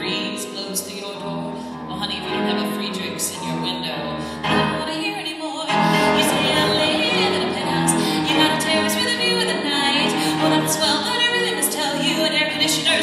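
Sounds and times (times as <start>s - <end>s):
grand piano accompaniment: 0.0s - 5.1s, 5.7s - 13.0s
woman singing: 0.0s - 13.0s.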